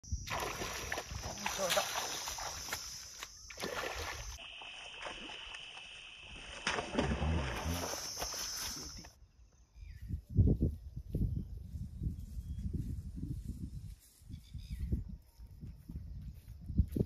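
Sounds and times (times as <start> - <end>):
water splashing: 0.2 - 9.0
fish flapping on grass: 4.4 - 9.1.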